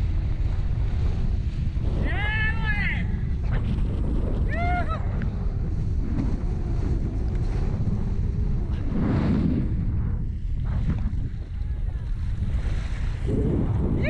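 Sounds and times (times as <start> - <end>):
water rushing and slapping: 0.0 - 14.0
wind buffeting microphone: 0.0 - 14.0.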